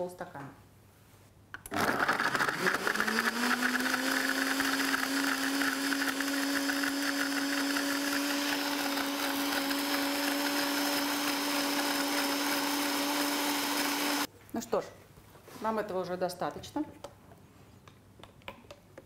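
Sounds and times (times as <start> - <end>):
blender chopping fruit: 1.7 - 14.3
blender motor humming: 1.7 - 14.3.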